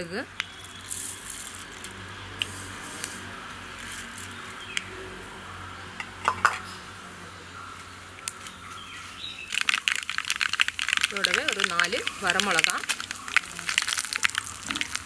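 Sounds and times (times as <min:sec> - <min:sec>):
seeds sizzling in hot oil: 0:00.4 - 0:04.8, 0:09.2 - 0:15.0
mustard seeds popping: 0:09.3 - 0:15.0.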